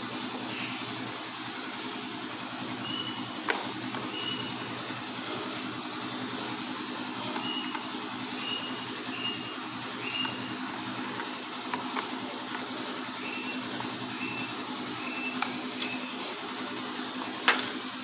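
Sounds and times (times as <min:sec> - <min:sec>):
spoon squeaking in batter bowl: 0:04.1 - 0:04.6, 0:07.3 - 0:10.6.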